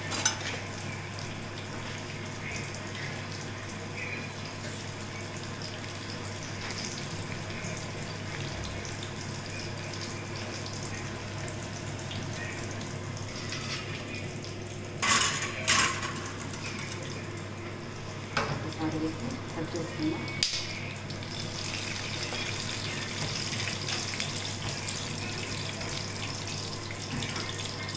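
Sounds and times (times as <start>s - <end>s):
utensils clattering loudly: 0.0s - 0.6s, 15.0s - 17.1s.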